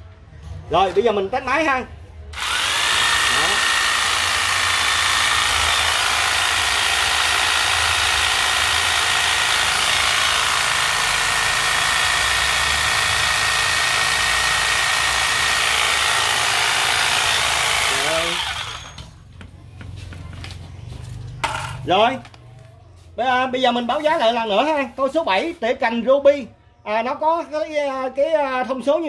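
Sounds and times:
electric hedge trimmer running: 2.4s - 19.0s.

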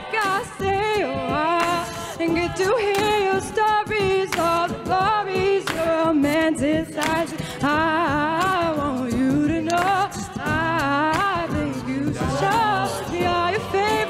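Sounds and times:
woman singing lead into microphone: 0.0s - 14.0s
sustained backing vocals: 9.5s - 14.0s.

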